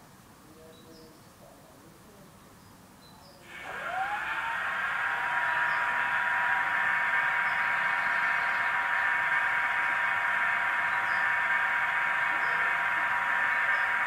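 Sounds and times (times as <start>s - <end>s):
diesel locomotive engine idling: 3.5s - 14.0s.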